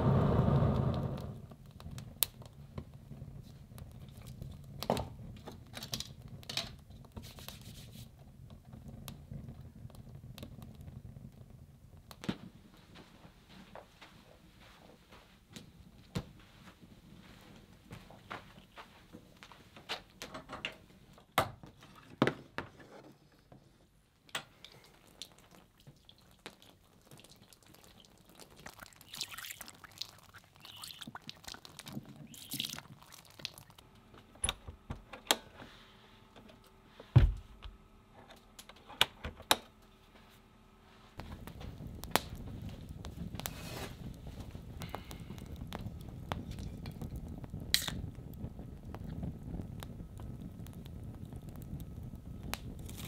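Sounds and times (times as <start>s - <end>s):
steady hiss: 0.0s - 1.5s
heavy thump: 37.2s - 37.7s.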